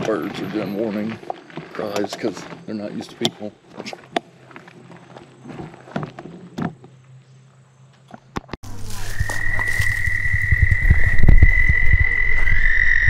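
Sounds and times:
low throbbing rumble: 8.7s - 13.0s.

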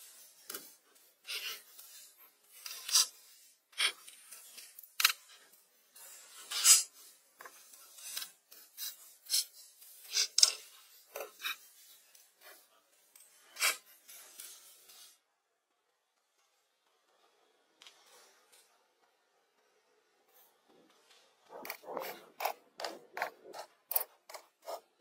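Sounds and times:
stone and grit scraping: 1.2s - 5.2s, 21.5s - 25.0s.

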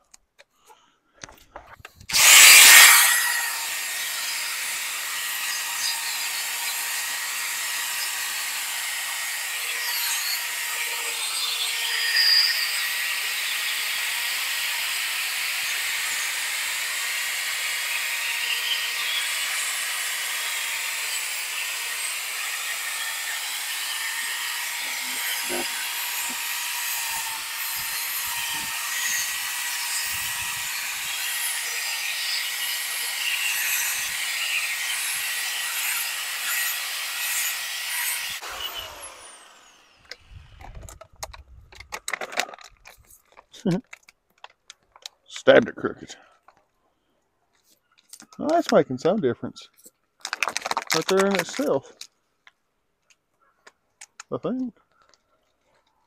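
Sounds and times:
drill whining: 2.1s - 41.0s.

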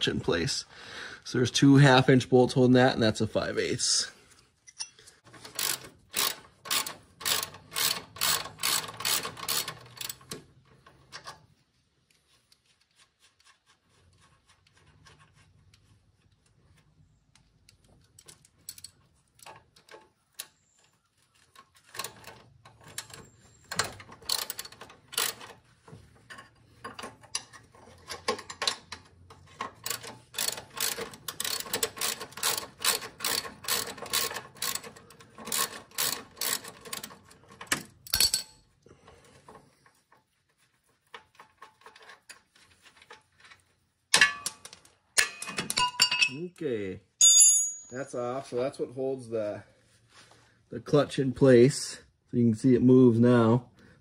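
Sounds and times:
socket ratchet clicking: 5.5s - 10.2s, 29.8s - 37.1s
faint rubbing and handling noise: 11.0s - 17.3s, 39.0s - 44.1s, 48.3s - 50.9s.

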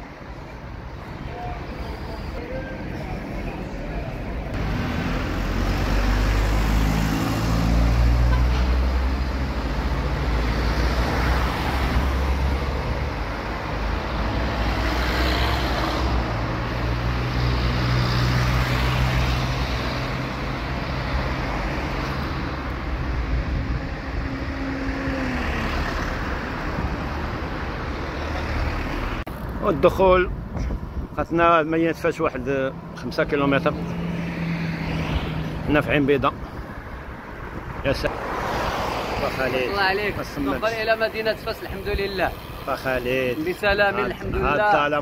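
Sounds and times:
road noise rush: 0.0s - 45.0s
vehicles passing: 0.0s - 45.0s
engine revving up: 4.6s - 8.3s.

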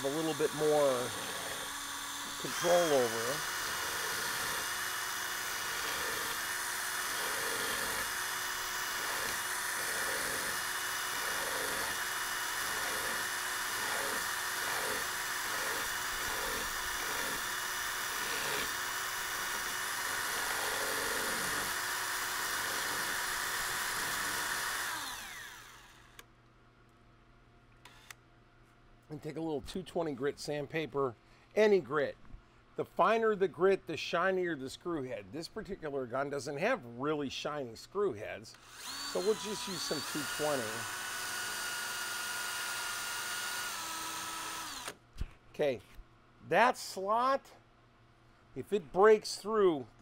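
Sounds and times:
electric drill motor whining: 0.0s - 26.2s, 38.6s - 45.0s.

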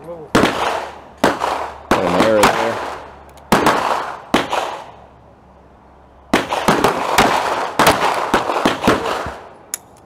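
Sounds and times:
pistol gunshots: 0.3s - 5.0s, 6.3s - 9.5s.

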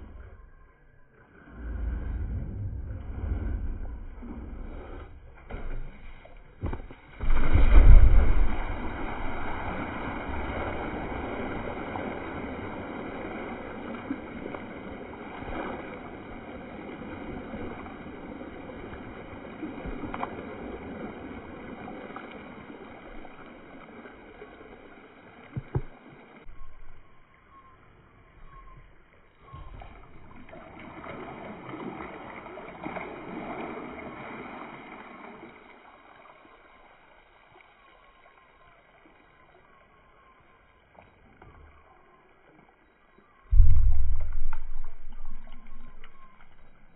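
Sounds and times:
water gushing and splashing: 1.4s - 27.0s, 29.5s - 37.4s, 43.5s - 46.9s.

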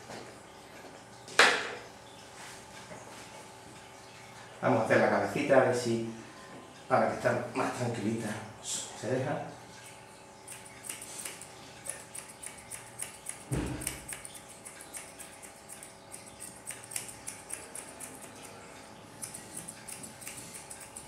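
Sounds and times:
scissors snipping fur: 10.5s - 21.0s.

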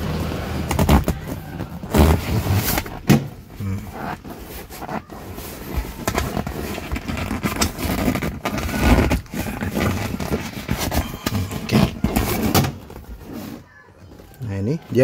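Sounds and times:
upholstery and plastic scraping: 0.1s - 15.0s.

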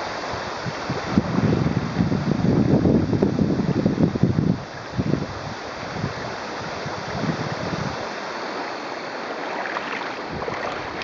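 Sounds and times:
wind on microphone: 0.0s - 11.0s
river water rippling over stones: 8.0s - 11.0s.

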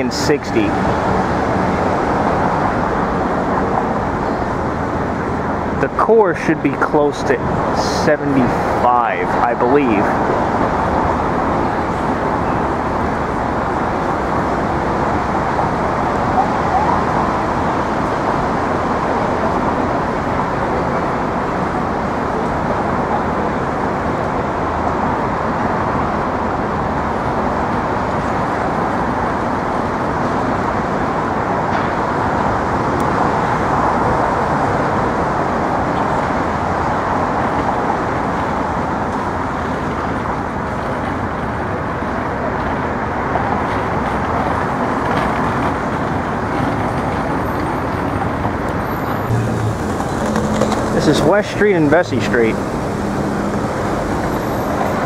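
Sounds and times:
road traffic rumble: 0.0s - 55.0s.

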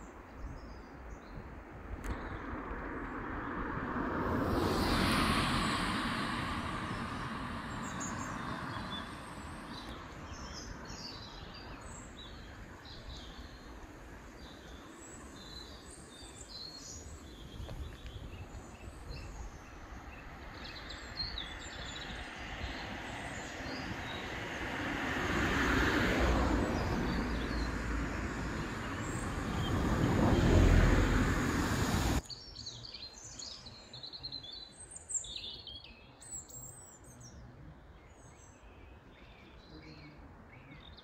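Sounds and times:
car passing on road: 1.8s - 32.2s
small birds chirping: 7.6s - 24.8s, 26.5s - 31.5s, 32.2s - 41.0s.

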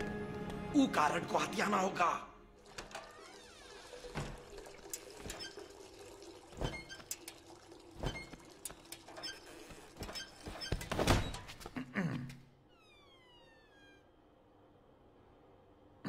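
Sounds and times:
cartoon urine stream pouring: 2.5s - 10.6s.

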